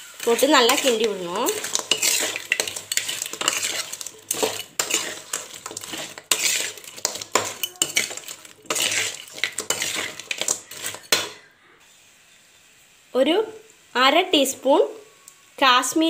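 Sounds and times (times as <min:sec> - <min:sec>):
metal spoon scraping metal pan: 0:00.0 - 0:11.4.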